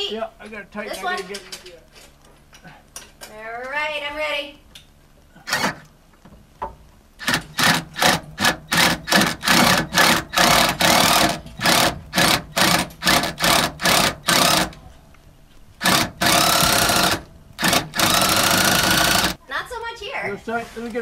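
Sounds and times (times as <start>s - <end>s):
ratchet wrench clicking: 15.8s - 19.4s.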